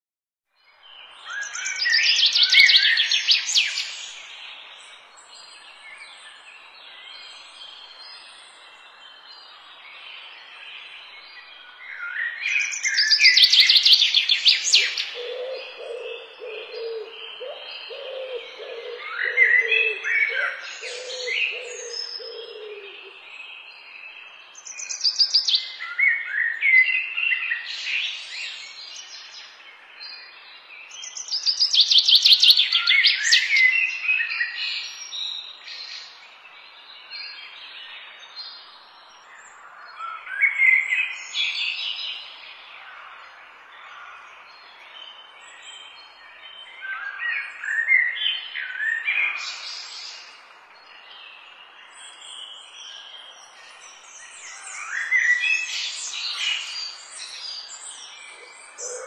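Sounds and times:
birds chirping and trilling: 0.6 - 59.0.

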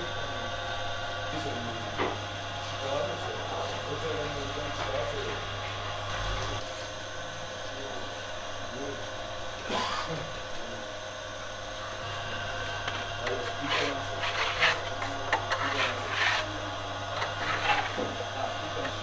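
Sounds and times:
dough mixer motor hum: 10.3 - 19.0
scraper scraping dough on bowl: 12.8 - 19.0.

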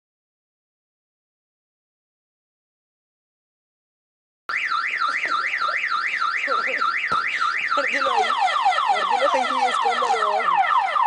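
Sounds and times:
car alarm warbling and chirping: 4.5 - 11.0.

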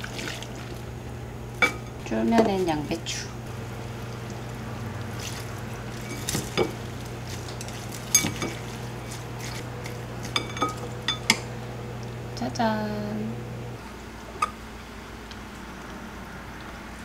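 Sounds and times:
steady low hum: 0.0 - 17.0
chopsticks tossing noodles in bowl: 3.9 - 10.4.

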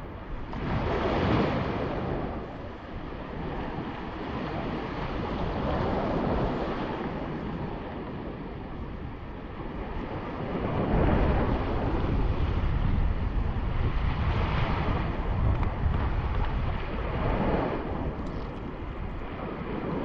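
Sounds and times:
wind rumbling on microphone: 0.0 - 20.0
small waves sloshing: 0.4 - 8.7.

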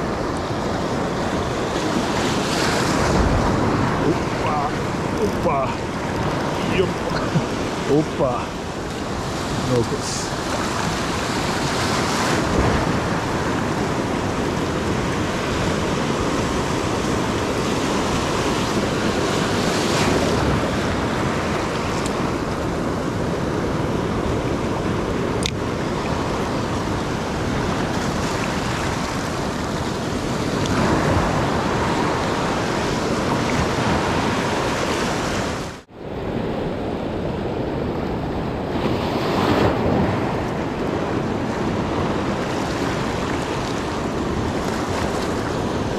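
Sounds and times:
waves breaking on rocks: 0.0 - 35.9, 37.7 - 45.9.

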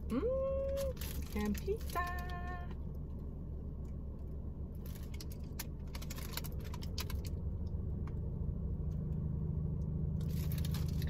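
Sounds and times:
car cabin hum: 0.0 - 11.0
paper bag crinkling: 0.7 - 2.4, 4.8 - 7.3, 10.2 - 11.0.

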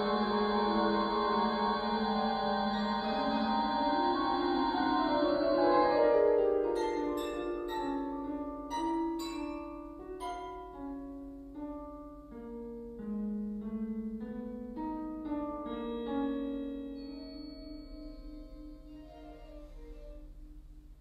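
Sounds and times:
ringing mallet notes: 6.7 - 10.9, 16.9 - 19.8.

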